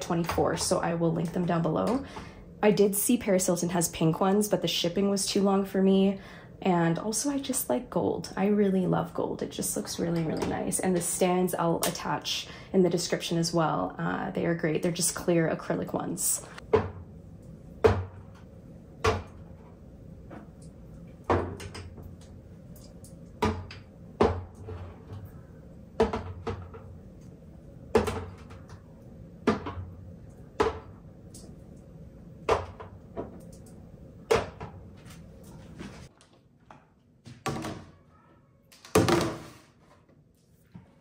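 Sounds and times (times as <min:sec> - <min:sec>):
plastic bins scraping: 0:24.4 - 0:25.3.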